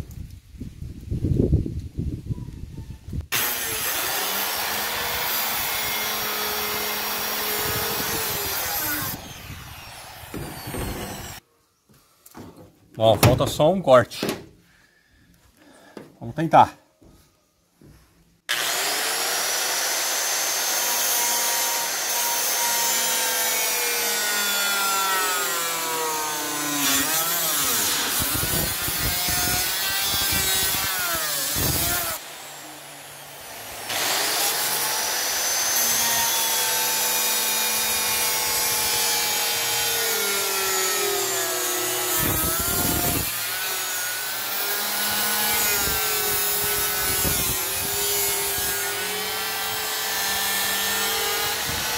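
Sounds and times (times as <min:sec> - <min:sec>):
circular saw cutting sheet steel: 0:03.3 - 0:11.4, 0:18.5 - 0:51.9.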